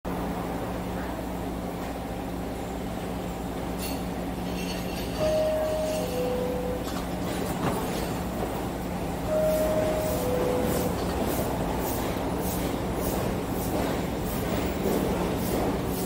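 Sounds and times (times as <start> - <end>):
standing train hum: 0.1 - 16.0
two-tone door chime: 5.1 - 7.2, 9.3 - 11.2.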